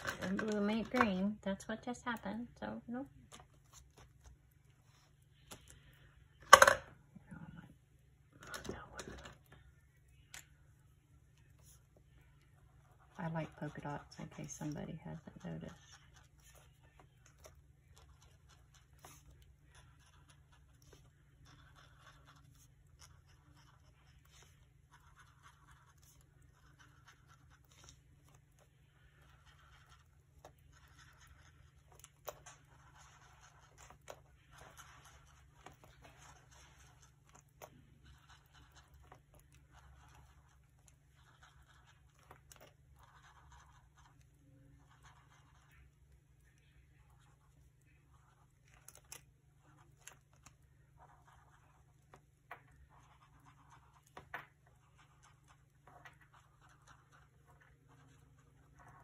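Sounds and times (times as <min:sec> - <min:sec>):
low steady hum: 0:00.0 - 0:59.0
pen tapping and scratching paper: 0:13.2 - 0:28.4, 0:29.2 - 0:44.2, 0:52.5 - 0:59.0.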